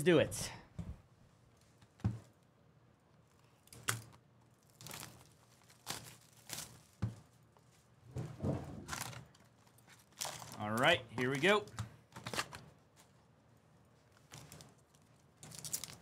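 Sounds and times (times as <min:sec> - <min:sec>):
plastic wrap crinkling: 0:03.6 - 0:11.5, 0:12.2 - 0:16.0
plastic shrink wrap tearing: 0:03.7 - 0:07.7, 0:08.8 - 0:11.0, 0:14.1 - 0:16.0.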